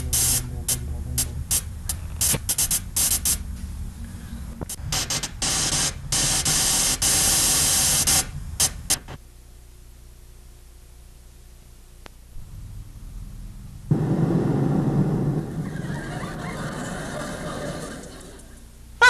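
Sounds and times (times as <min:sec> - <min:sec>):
radio static hiss: 0:00.0 - 0:03.4, 0:04.5 - 0:09.2
faint low hum: 0:00.0 - 0:07.0, 0:08.2 - 0:19.0.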